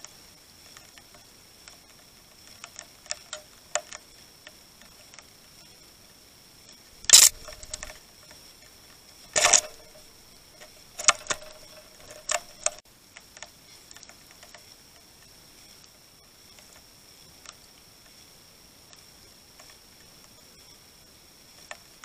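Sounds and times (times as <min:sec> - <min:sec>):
birds pecking on feeder board: 0:07.1 - 0:08.0, 0:09.3 - 0:15.9.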